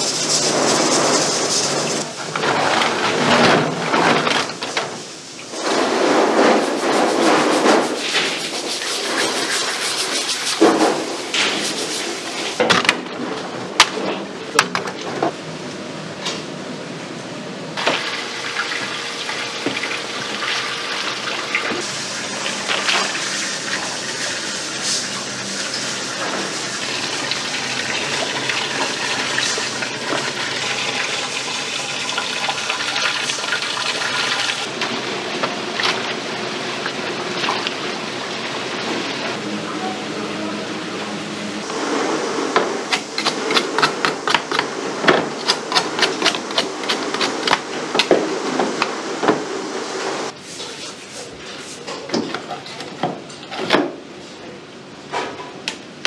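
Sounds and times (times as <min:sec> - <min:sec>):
tap water running: 0:17.8 - 0:34.7.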